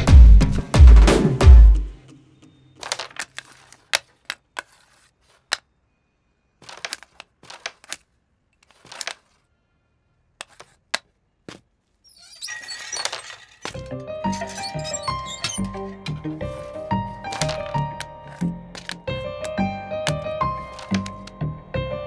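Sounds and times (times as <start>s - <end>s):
background music: 0.0s - 2.7s, 13.8s - 22.0s.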